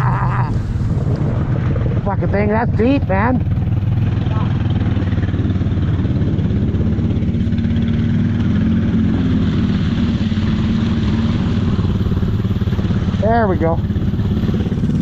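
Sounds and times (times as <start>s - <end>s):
atv engine running under load: 0.0s - 15.0s.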